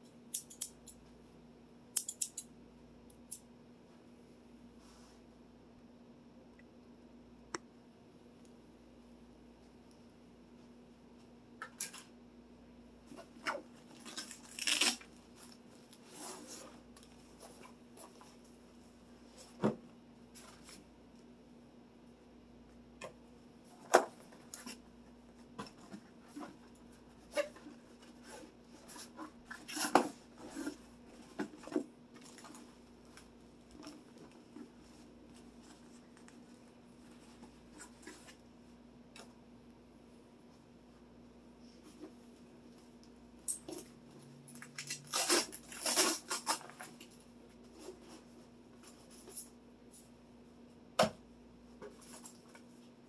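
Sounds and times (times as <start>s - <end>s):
metal parts clicking and rattling: 0.3s - 1.0s, 2.0s - 2.5s.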